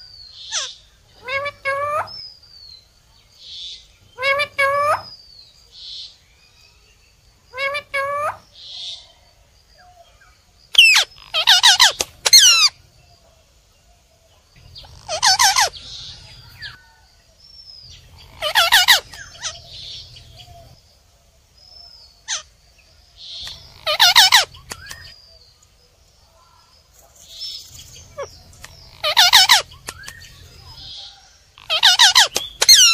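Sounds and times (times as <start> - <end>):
parakeets squawking: 0.5 - 2.2, 4.2 - 5.2, 7.5 - 8.4, 10.8 - 12.8, 14.6 - 16.8, 17.9 - 20.8, 22.2 - 22.5, 23.4 - 25.1, 27.9 - 30.9, 31.6 - 32.9.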